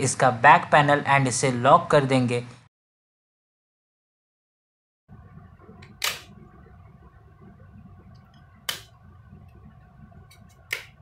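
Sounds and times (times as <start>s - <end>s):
plastic clips snapping into place: 5.9s - 6.3s, 10.3s - 11.0s.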